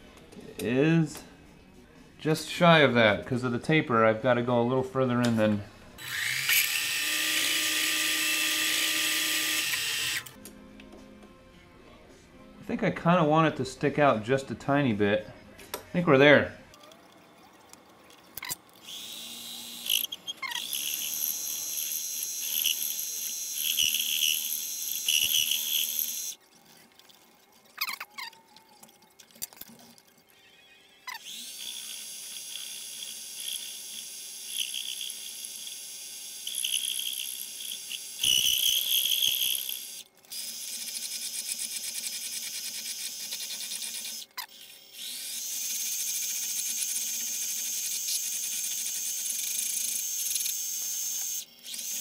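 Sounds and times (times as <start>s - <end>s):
lathe motor whining: 18.8s - 26.4s, 31.1s - 52.0s.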